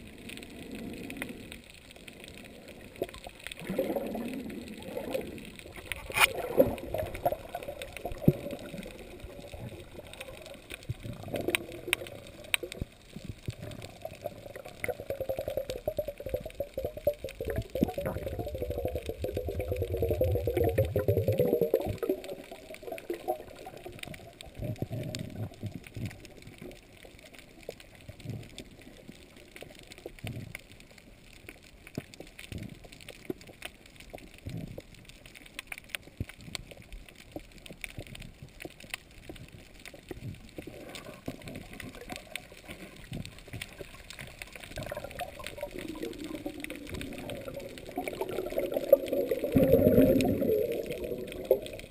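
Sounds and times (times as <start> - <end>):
fine crackling clicks: 0.0 - 51.9
moving water swells: 0.0 - 51.9
diver exhaling bubbles: 2.8 - 23.7, 44.8 - 51.9.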